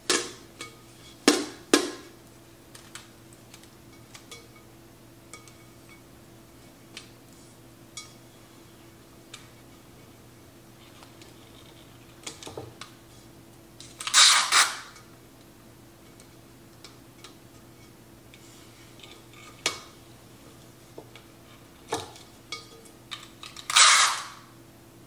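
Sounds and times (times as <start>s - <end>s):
tape ripping screech: 14.0s - 14.9s, 23.7s - 24.5s.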